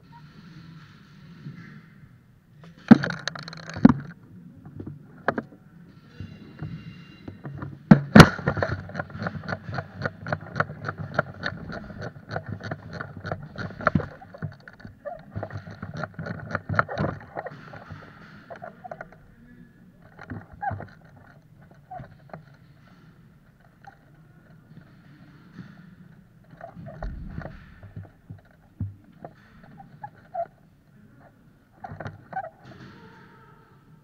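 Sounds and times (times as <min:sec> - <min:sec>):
sharp knocks: 0:26.8 - 0:29.0.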